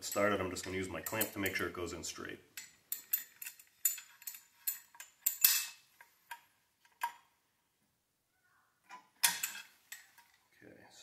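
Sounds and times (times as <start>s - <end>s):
metal clamp clicking and scraping: 0.0s - 1.6s, 2.6s - 7.3s, 8.9s - 10.4s.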